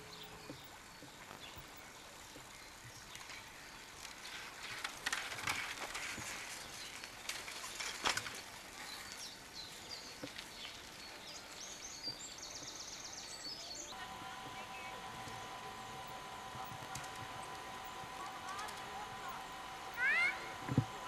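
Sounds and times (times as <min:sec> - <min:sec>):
birds singing: 0:00.0 - 0:03.9, 0:08.8 - 0:21.0
bicycle rolling over gravel: 0:02.9 - 0:12.3.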